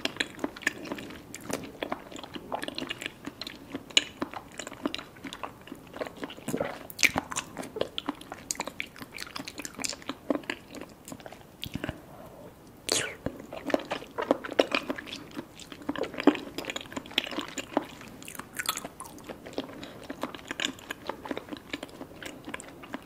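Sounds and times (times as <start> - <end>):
wet chewing mouth clicks: 12.9 - 21.9.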